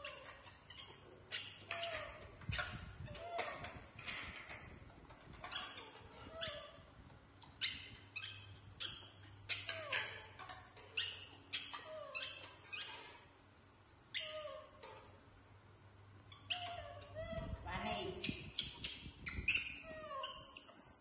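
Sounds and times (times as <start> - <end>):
macaques squeaky calls: 0.0 - 4.4, 5.4 - 13.2, 14.1 - 14.8, 16.3 - 17.5, 18.2 - 20.8.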